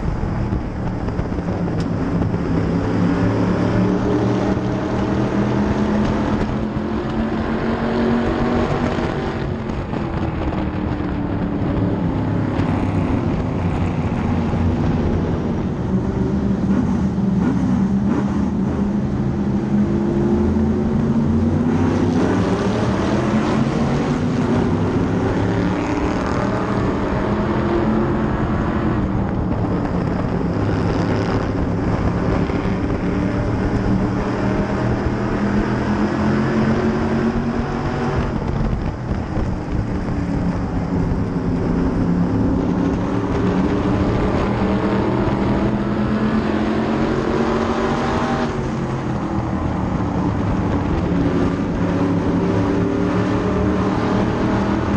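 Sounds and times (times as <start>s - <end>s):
other race cars passing: 0.0s - 54.9s
race car engine: 0.0s - 54.9s.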